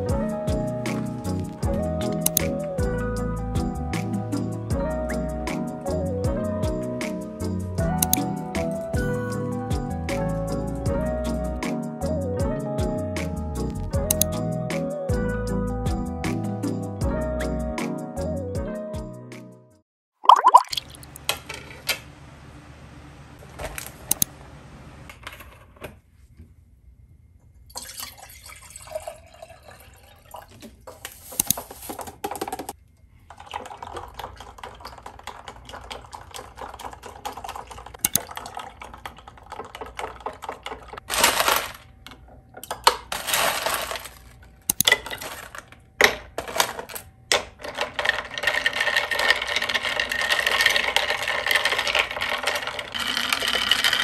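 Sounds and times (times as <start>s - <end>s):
liquid sounds: 20.2s - 21.2s.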